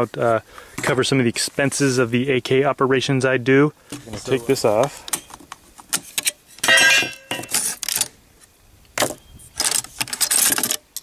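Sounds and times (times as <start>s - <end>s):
metal scraping on metal: 6.0s - 7.8s
metal clack: 6.6s - 7.6s.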